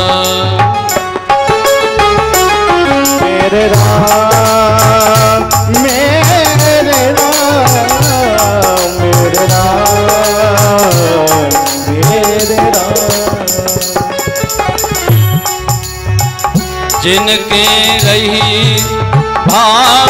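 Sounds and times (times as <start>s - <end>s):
sliding held melody: 0.0s - 20.0s
hand drum beat: 3.7s - 19.8s
percussion clicks: 10.7s - 17.6s.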